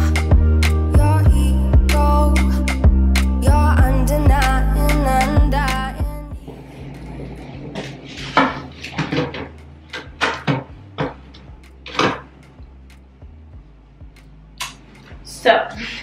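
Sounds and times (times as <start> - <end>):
household items knocking and rattling: 7.8 - 11.2.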